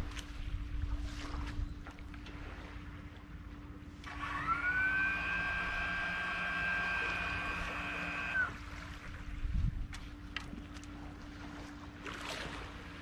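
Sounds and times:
small motor whine: 4.0s - 9.4s.

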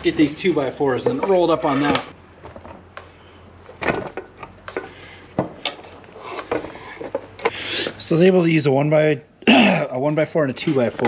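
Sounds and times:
metallic clinks and knocks: 3.8s - 4.9s, 5.6s - 7.4s.

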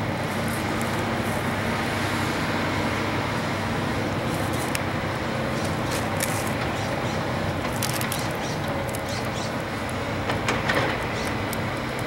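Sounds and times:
excavator diesel engines running: 0.0s - 12.0s.

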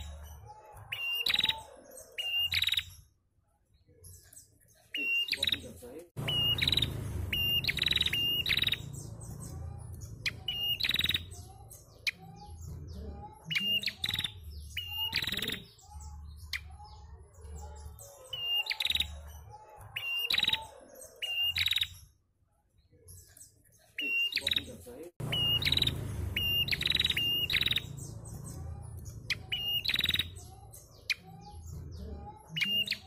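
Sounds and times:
bird whistle and buzzy rattle: 6.2s - 11.6s, 25.2s - 31.2s.

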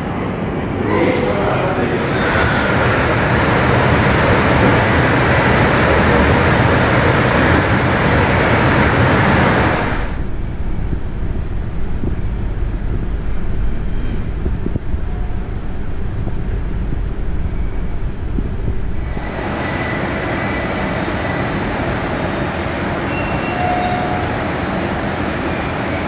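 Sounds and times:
airport ambient rush: 0.0s - 26.0s
low rumble: 9.0s - 20.5s.

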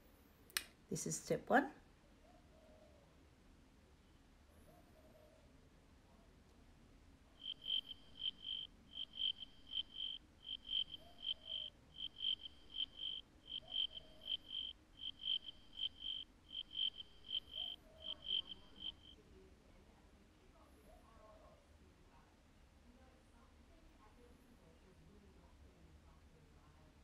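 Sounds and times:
cricket chirping: 7.4s - 19.2s.

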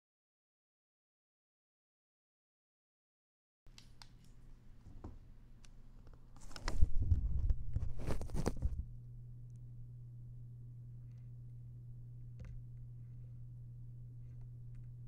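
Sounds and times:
steady low hum: 3.7s - 15.0s
headset rustling on microphone: 6.2s - 8.9s.

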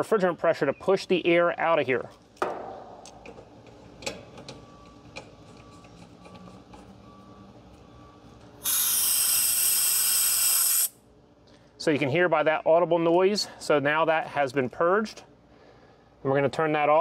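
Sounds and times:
refrigerant gas hissing out: 8.6s - 11.0s.

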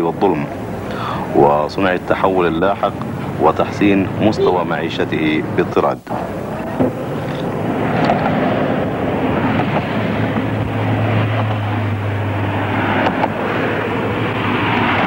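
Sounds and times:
vehicles passing at speed: 7.0s - 15.0s.

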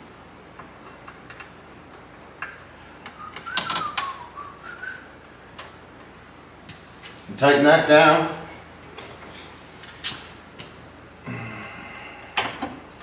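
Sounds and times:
short wavering whistle: 3.2s - 5.1s.

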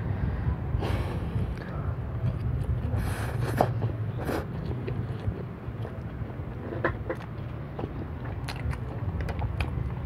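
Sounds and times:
noodles slurped: 2.3s - 10.0s.

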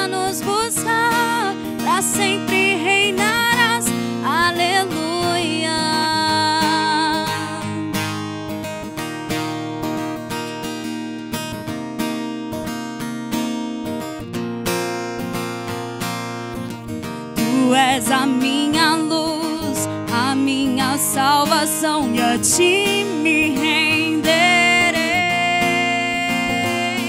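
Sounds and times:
woman singing: 0.0s - 8.2s, 17.4s - 27.0s
acoustic guitar strumming: 0.0s - 27.0s.

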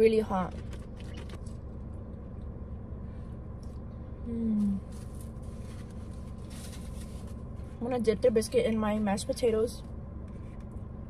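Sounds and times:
car cabin hum: 0.0s - 11.0s
woman humming mmm: 4.2s - 4.8s.

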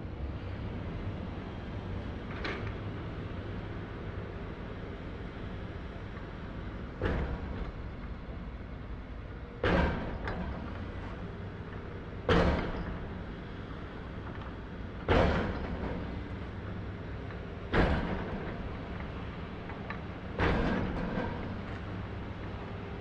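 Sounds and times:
heavy machinery banging: 5.2s - 23.0s.

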